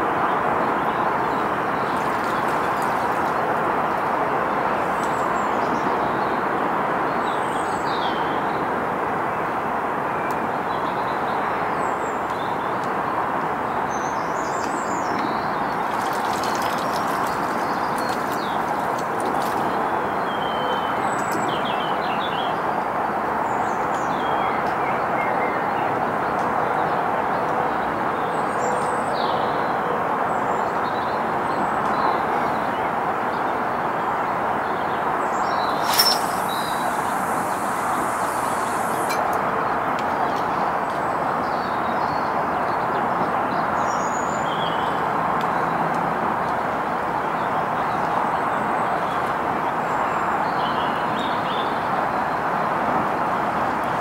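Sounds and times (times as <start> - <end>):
small birds chirping: 1.2 - 4.0, 14.6 - 22.2, 34.7 - 39.3
outdoor rushing noise: 35.4 - 39.2
sharp click: 35.7 - 39.3.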